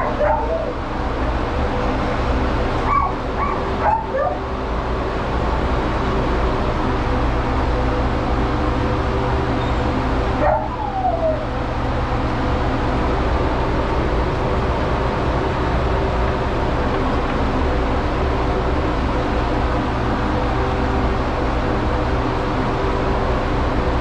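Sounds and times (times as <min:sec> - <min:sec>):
dog whimpering: 0:00.0 - 0:00.8, 0:10.4 - 0:11.5.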